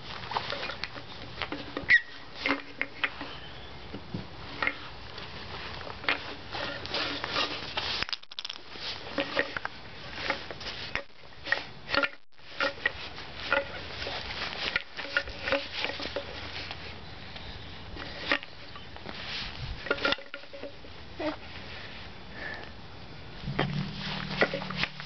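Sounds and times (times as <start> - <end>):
short squeaky blips: 1.9 - 2.2.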